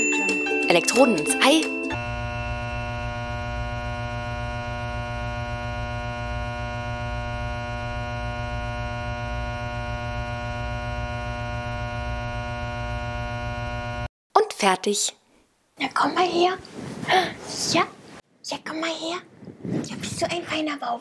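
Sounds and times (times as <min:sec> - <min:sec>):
electrical mains hum: 0:01.9 - 0:14.1.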